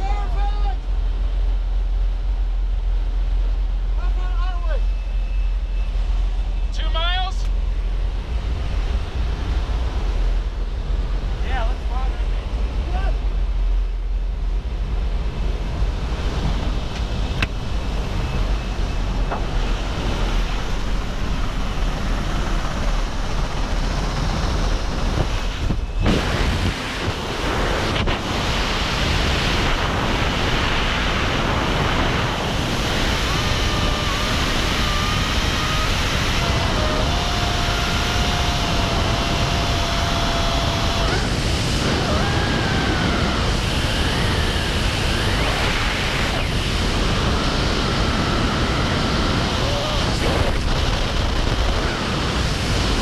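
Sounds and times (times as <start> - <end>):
aircraft noise: 0.0 - 53.0
rushing wind: 0.0 - 53.0
faint high whistles: 4.8 - 6.8.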